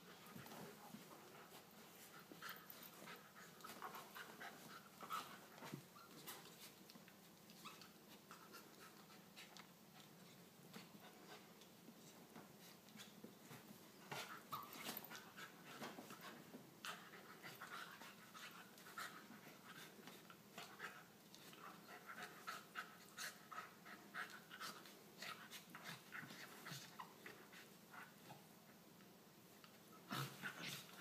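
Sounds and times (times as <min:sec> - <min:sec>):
puppy panting: 0:14.0 - 0:28.2.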